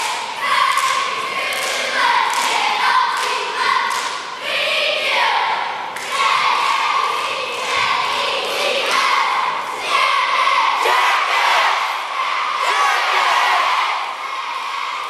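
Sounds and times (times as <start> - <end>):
sharp claps: 0.0 - 4.3, 5.9 - 6.9
cheerleaders chanting in unison: 0.0 - 15.0.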